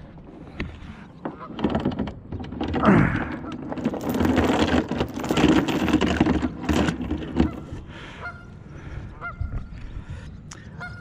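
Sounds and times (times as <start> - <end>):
chain clanking on wooden boards: 0.2 - 7.9
geese honking: 7.4 - 9.6, 10.7 - 11.0.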